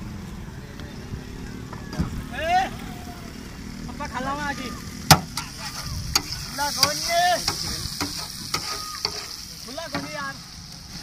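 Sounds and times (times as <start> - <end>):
meat sizzling on a griddle: 3.0 - 11.0
metal spatula scraping: 5.3 - 10.2.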